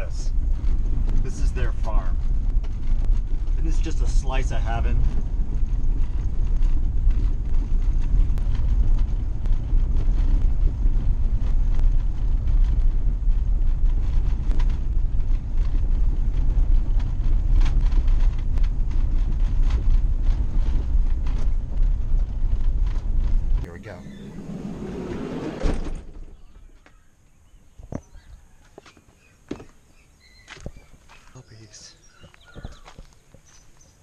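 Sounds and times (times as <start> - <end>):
low road rumble in cab: 0.0 - 27.0
tyres crunching over stones: 27.7 - 34.0.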